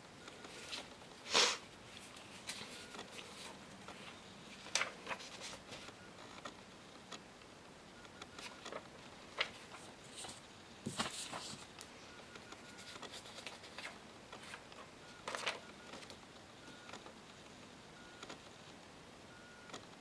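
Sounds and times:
faint room hiss: 0:00.0 - 0:20.0
paper cards rustling and clicking: 0:01.9 - 0:06.5, 0:08.4 - 0:11.9, 0:12.6 - 0:16.2.

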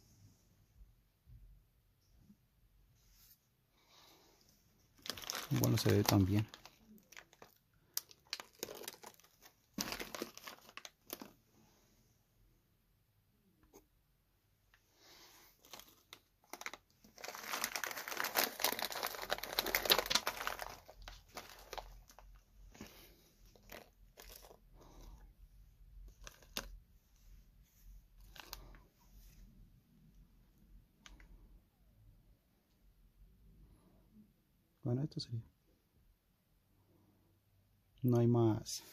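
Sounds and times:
plastic bag crinkling: 0:05.0 - 0:11.4, 0:15.5 - 0:25.2, 0:26.0 - 0:26.8, 0:28.2 - 0:28.8.

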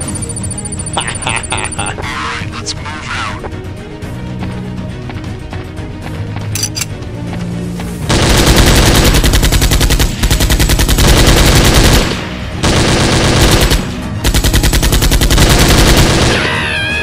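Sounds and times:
machine-gun fire: 0:08.1 - 0:16.5.

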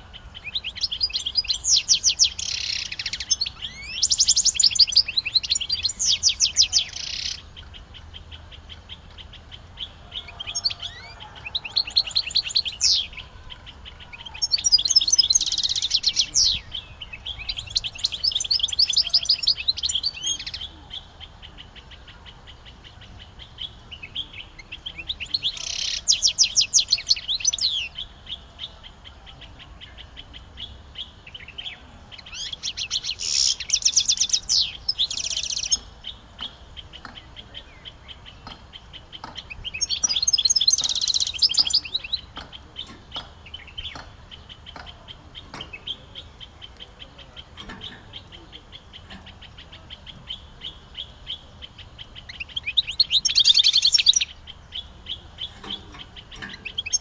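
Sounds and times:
songbird trilling and chirping: 0:00.0 - 0:57.0.

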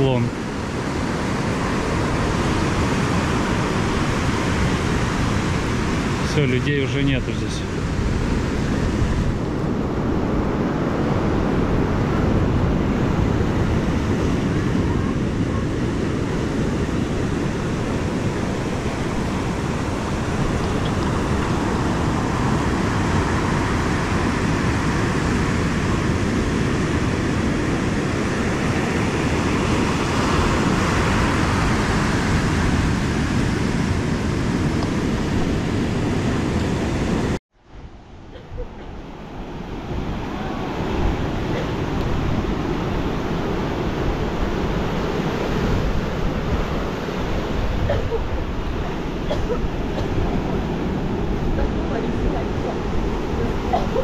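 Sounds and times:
surf breaking on shore: 0:00.0 - 0:54.0
wind buffeting microphone: 0:00.0 - 0:54.0.

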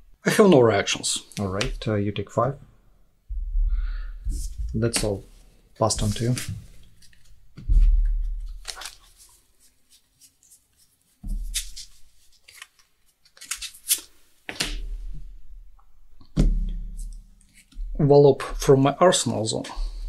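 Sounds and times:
trading cards rustling and sliding: 0:06.0 - 0:07.4, 0:08.5 - 0:14.8.

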